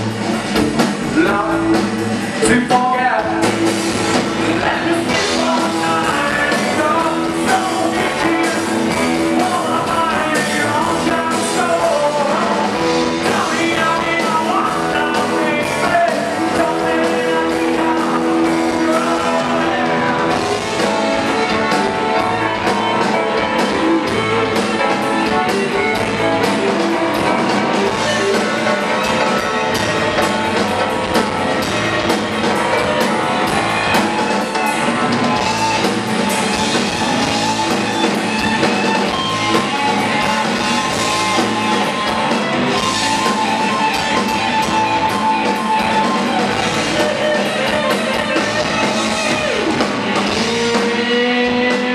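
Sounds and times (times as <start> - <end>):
bass guitar: 0.0 - 51.9
drums: 0.0 - 51.9
electric guitar: 0.0 - 51.9
man singing: 1.0 - 51.9.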